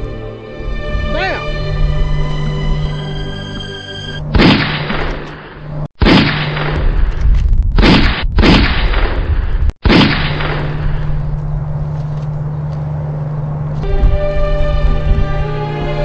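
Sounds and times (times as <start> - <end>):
low steady hum: 9.9 - 16.0.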